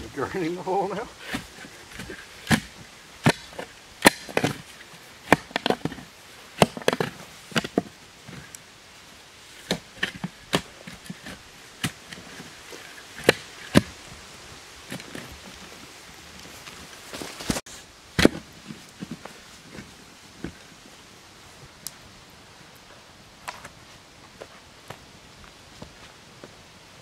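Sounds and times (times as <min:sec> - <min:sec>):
spade scraping: 0:00.0 - 0:08.6
spade striking soil: 0:01.2 - 0:06.0, 0:06.6 - 0:08.6.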